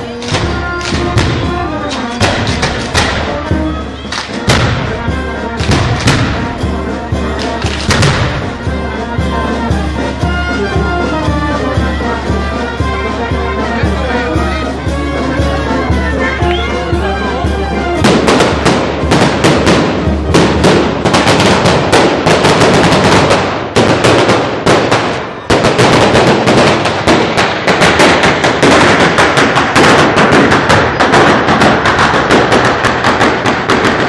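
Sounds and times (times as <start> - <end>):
firecrackers cracking rapidly: 0.0 - 9.2, 18.0 - 34.0
brass band music: 0.0 - 34.0.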